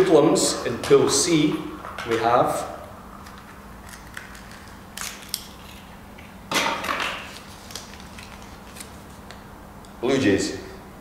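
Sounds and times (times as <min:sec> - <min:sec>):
paper rustling: 0:07.1 - 0:09.3.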